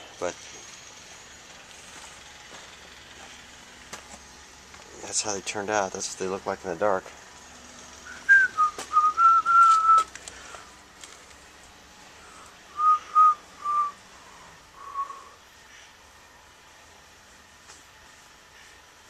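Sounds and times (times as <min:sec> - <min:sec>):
person whistling a tune: 0:08.1 - 0:10.1, 0:12.8 - 0:14.0.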